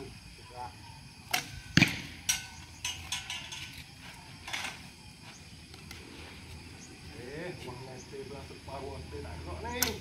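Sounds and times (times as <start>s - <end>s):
bows and arrows clicking: 9.7s - 10.0s.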